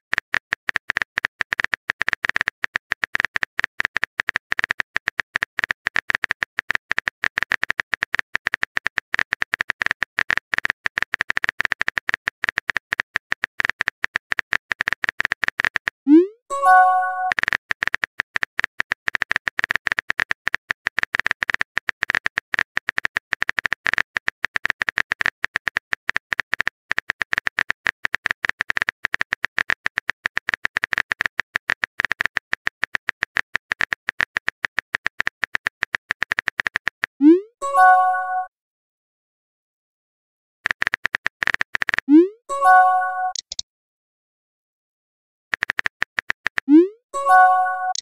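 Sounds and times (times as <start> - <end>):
phone keyboard typing clicks: 0.1 - 16.0, 16.6 - 37.2, 40.6 - 43.6, 45.5 - 48.0
brief message chime: 16.5 - 17.3.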